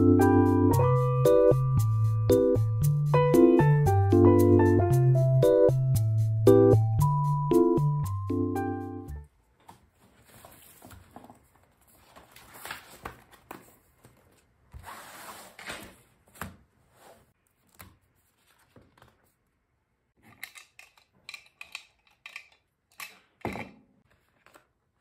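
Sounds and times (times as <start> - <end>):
paper rustling and sliding: 9.8 - 19.4.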